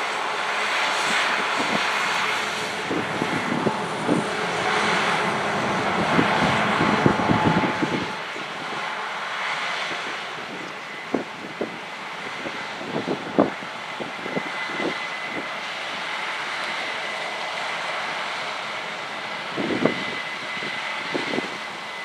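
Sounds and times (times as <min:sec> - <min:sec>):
farm machinery running: 0:01.1 - 0:08.8.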